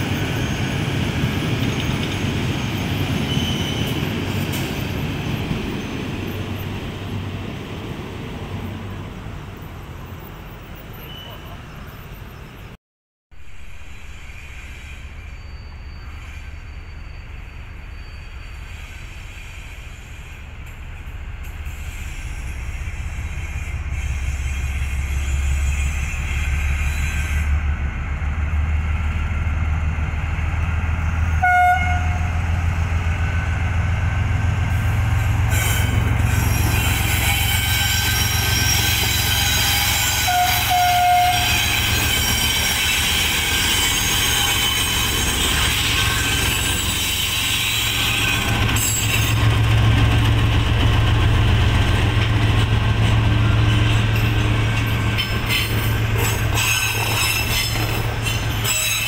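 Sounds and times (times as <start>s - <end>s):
locomotive engine drone: 20.2s - 59.0s
train horn: 31.4s - 32.6s, 34.7s - 42.5s.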